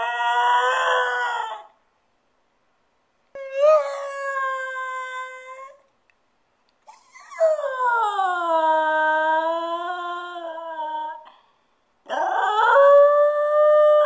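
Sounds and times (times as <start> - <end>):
dog howling: 0.0 - 1.8, 3.4 - 5.8, 12.1 - 14.0.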